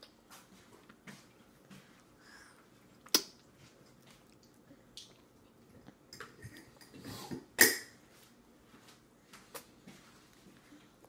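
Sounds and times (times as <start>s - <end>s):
toddler eating wet smacks: 0.0s - 7.7s, 9.4s - 9.8s.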